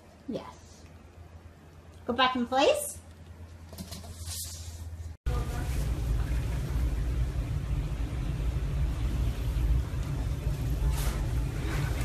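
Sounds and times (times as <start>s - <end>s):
steady low rumble: 5.3s - 12.0s.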